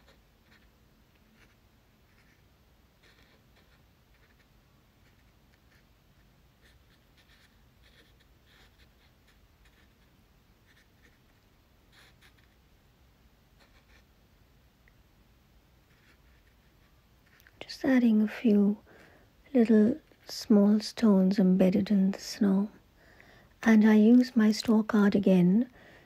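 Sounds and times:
paintbrush scratching on paper: 0.0 - 12.6, 13.6 - 14.1, 15.8 - 17.6
low room hum: 0.0 - 26.0.

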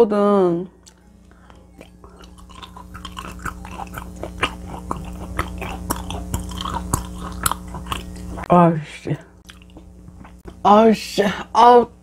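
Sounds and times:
wet mouth chewing: 0.8 - 8.5, 9.4 - 10.6.

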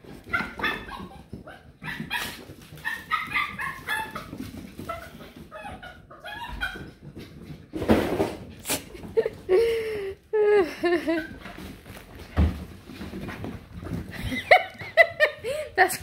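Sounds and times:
puppies yipping and barking: 0.1 - 7.5.

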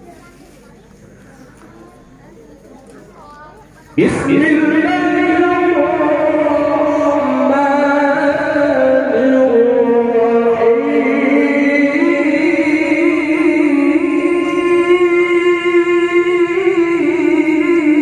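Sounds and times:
man reciting melodically: 4.0 - 18.0.

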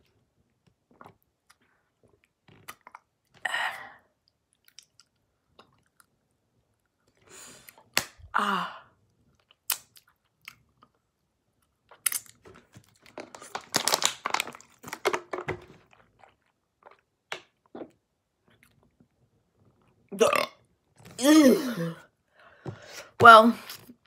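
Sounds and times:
chewing candy: 4.5 - 6.2.

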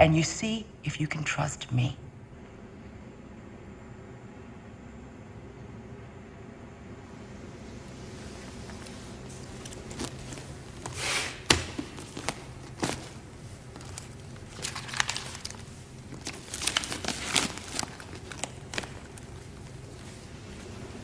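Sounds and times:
steady low hum: 0.0 - 21.0
rustling: 8.0 - 21.0.

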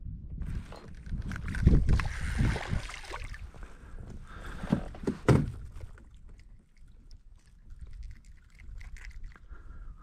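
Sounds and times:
fish thumping against kayak: 4.4 - 6.4.

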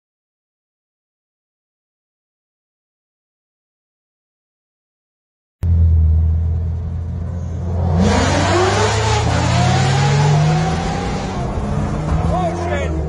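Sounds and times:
car engine accelerating: 5.6 - 13.0.

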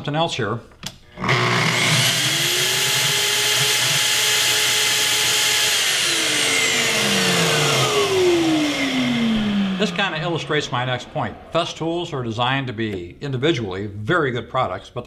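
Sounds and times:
dust extractor suction rush: 1.2 - 13.0
circular saw whining: 1.2 - 13.1.

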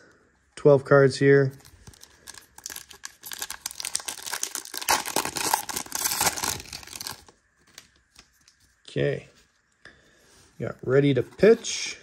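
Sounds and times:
foil wrapper tearing and crinkling: 1.6 - 7.3.

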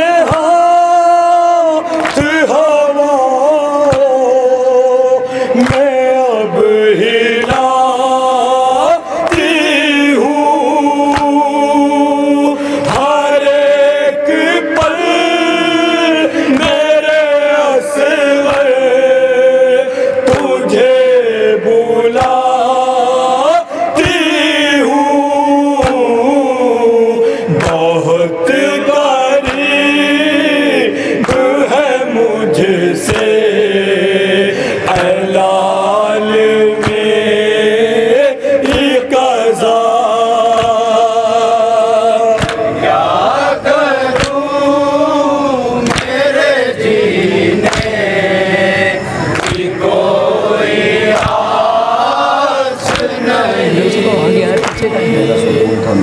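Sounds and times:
men chanting a lament: 0.0 - 56.0
hands slapping chests: 1.9 - 2.6, 3.8 - 4.2, 5.6 - 6.1, 7.4 - 7.8, 9.2 - 9.7, 11.1 - 11.4, 12.8 - 13.5, 16.5 - 16.9, 18.4 - 18.8, 20.3 - 20.5, 22.2 - 22.4, 25.8 - 26.1, 27.5 - 27.9, 29.4 - 29.8, 31.2 - 31.6, 33.1 - 33.4, 34.8 - 35.2, 36.8 - 37.2, 38.6 - 39.0, 40.5 - 40.8, 42.4 - 43.5, 44.1 - 44.6, 45.8 - 46.4, 47.6 - 48.1, 49.2 - 50.0, 50.6 - 52.2, 52.8 - 53.2, 54.6 - 54.9.

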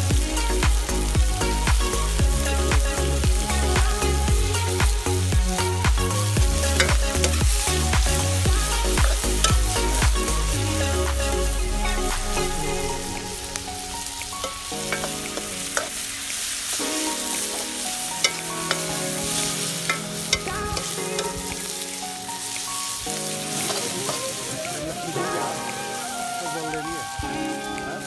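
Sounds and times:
onions sizzling in hot oil: 0.0 - 28.0
ladle stirring: 6.6 - 10.0.

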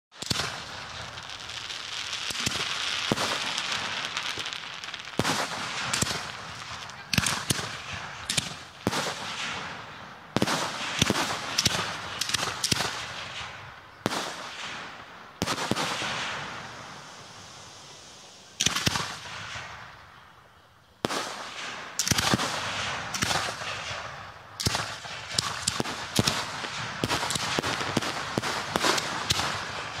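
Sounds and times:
firework bangs: 0.1 - 20.0, 21.0 - 30.0
hiss of rising shells: 15.6 - 19.4.

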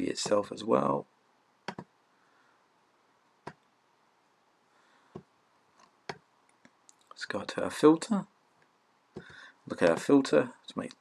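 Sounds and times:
computer mouse clicking: 1.7 - 1.9.

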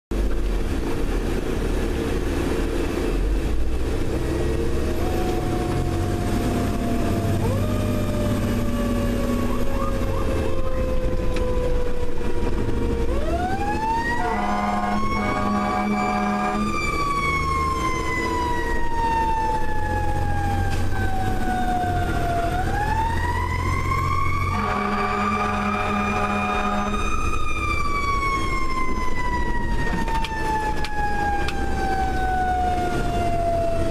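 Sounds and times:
engine rumble: 0.1 - 33.9
air horn blasts: 14.1 - 17.0, 24.4 - 27.3.

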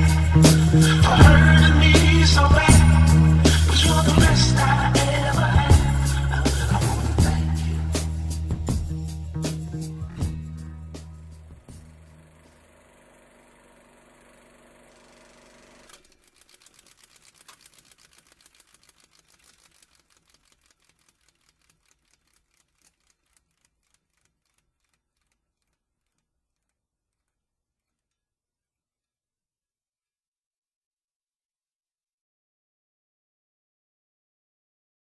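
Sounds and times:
fast run of clicks: 0.0 - 8.7, 14.0 - 28.2.

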